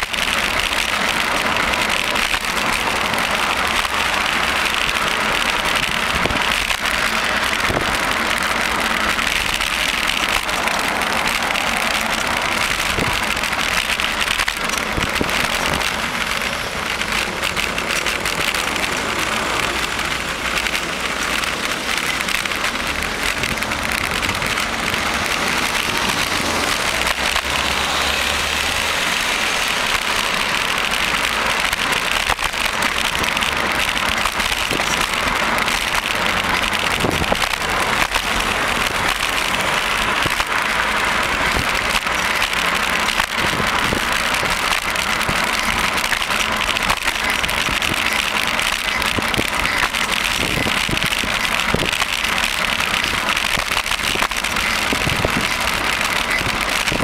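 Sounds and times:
bicycle air and tyre noise: 0:00.0 - 0:57.0
car traffic: 0:00.0 - 0:57.0.

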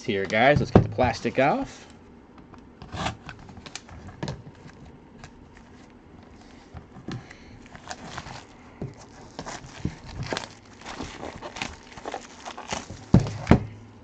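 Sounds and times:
shrink-wrap plastic crinkling: 0:07.3 - 0:13.5.

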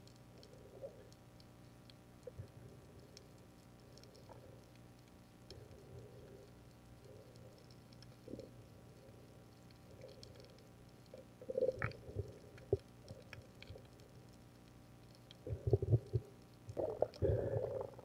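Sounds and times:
faint crackling clicks: 0:00.0 - 0:18.0
underwater gurgling water: 0:05.5 - 0:18.0.

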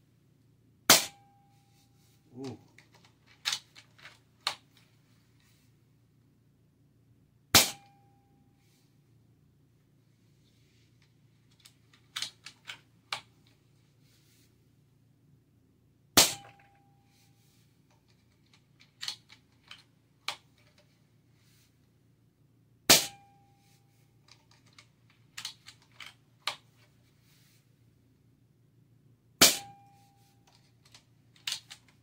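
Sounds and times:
air rifle shots: 0:07.6 - 0:07.8, 0:16.2 - 0:16.5, 0:22.9 - 0:23.2, 0:29.4 - 0:29.7.

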